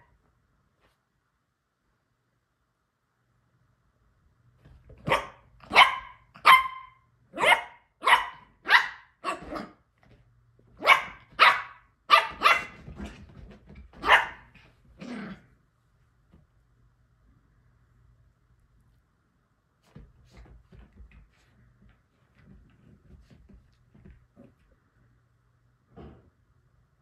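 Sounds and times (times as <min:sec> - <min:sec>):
small dog yapping: 0:05.0 - 0:09.8, 0:10.8 - 0:12.8, 0:14.0 - 0:14.6.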